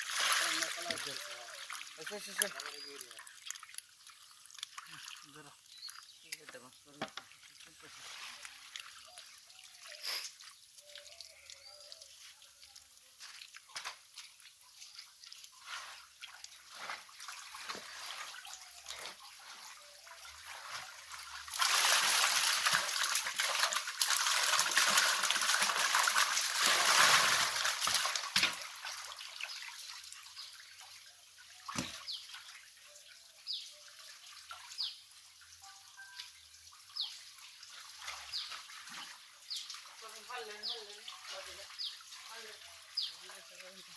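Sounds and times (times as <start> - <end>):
small wet splashes and slaps: 0.0 - 7.7, 8.3 - 31.0, 31.6 - 32.6
rush of splashing water: 0.0 - 32.9, 35.6 - 43.9.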